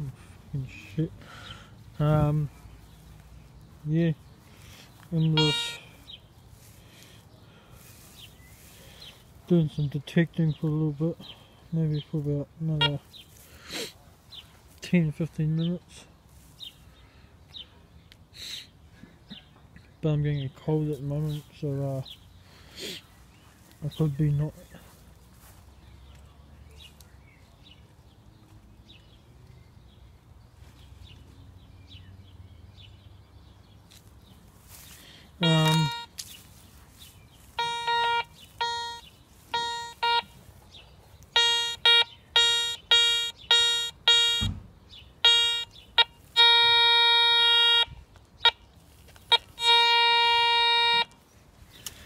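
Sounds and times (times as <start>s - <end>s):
metal detector short beeps: 5.2s - 5.9s, 35.4s - 36.1s, 37.6s - 40.3s, 41.3s - 44.5s, 45.2s - 48.6s, 49.3s - 51.2s
metal detector long held tones: 5.3s - 5.9s, 35.4s - 36.1s, 37.6s - 40.4s, 41.4s - 44.5s, 49.3s - 51.2s.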